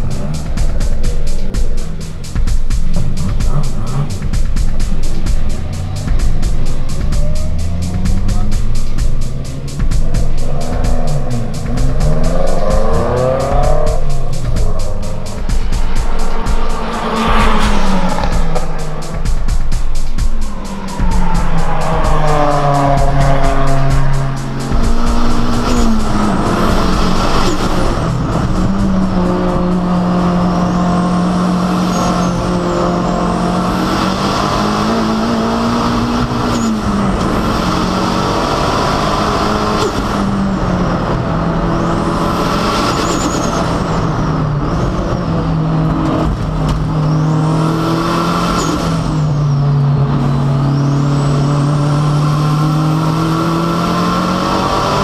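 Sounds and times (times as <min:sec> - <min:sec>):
engine revving hard: 0:00.0 - 0:55.0
race car passing by fast: 0:11.3 - 0:19.7, 0:20.4 - 0:32.4.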